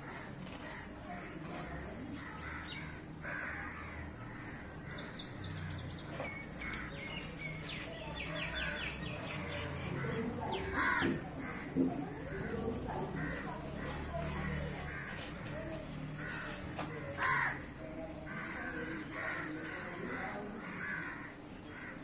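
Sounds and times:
birds chirping: 0.1 - 22.0
crows cawing: 2.1 - 5.4, 8.4 - 22.0.

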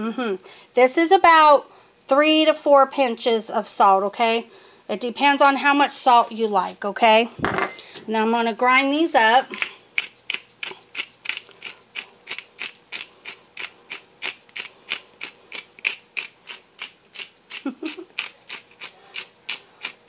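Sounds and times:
pepper grinder clicking: 9.6 - 20.0.

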